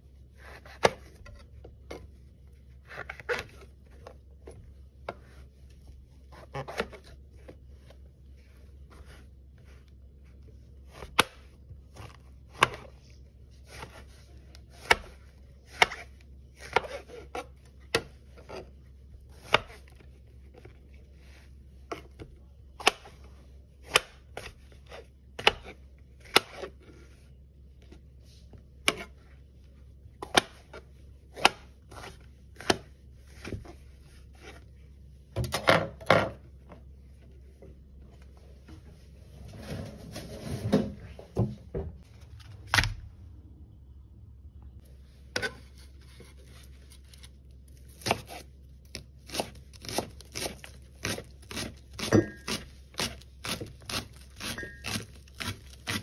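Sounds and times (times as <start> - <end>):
knife chopping on plastic board: 0.4 - 2.1, 13.6 - 18.7, 21.9 - 26.8, 30.2 - 33.8, 47.9 - 56.0.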